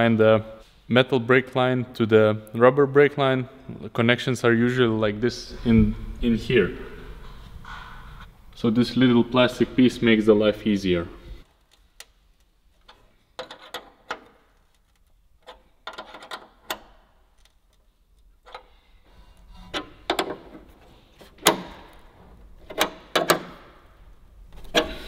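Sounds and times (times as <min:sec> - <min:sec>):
wrench clicking and tapping on metal: 0:12.9 - 0:14.4, 0:15.4 - 0:17.6, 0:22.6 - 0:23.5.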